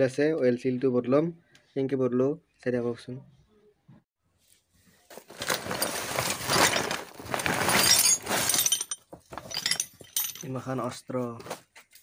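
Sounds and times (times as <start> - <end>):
plastic sack rustling and crinkling: 5.0 - 9.6
metal tools clinking: 5.6 - 10.7.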